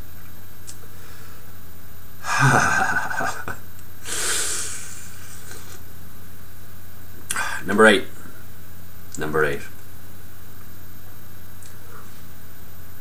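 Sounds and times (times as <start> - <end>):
man exhaling: 4.0 - 5.1
hissing breath: 4.0 - 5.8.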